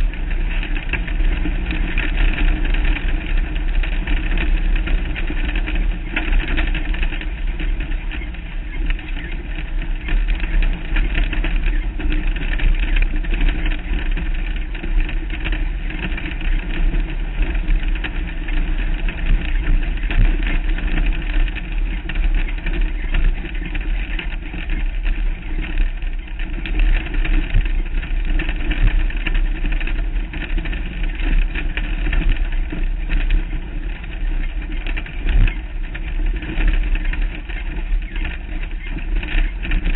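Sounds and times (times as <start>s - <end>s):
heavy low rumble: 0.0s - 39.9s
race vehicle engine running: 0.0s - 39.9s.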